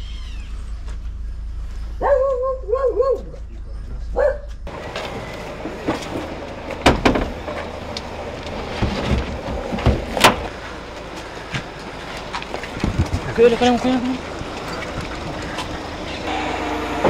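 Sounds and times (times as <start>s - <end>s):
outdoor background noise: 0.0s - 17.0s
knocks of heavy items handled: 4.9s - 7.7s, 8.5s - 10.5s.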